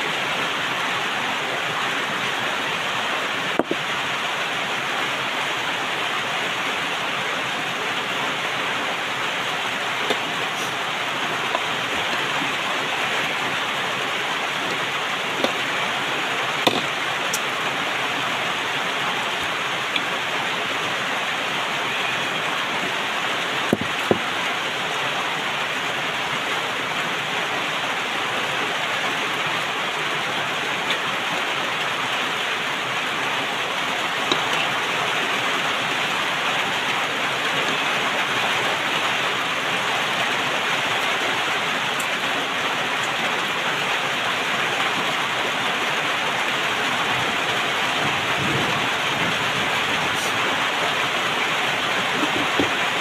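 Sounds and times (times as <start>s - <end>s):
rain-like rushing noise: 0.0s - 53.0s.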